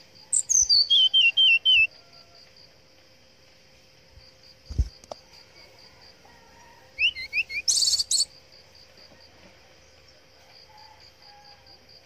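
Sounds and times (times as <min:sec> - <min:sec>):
harsh rattling bird call: 0:00.0 - 0:02.4, 0:06.4 - 0:08.3
insect pulsing: 0:00.0 - 0:02.6, 0:04.1 - 0:08.9
bird whistling rising notes: 0:00.4 - 0:01.9, 0:07.0 - 0:08.3.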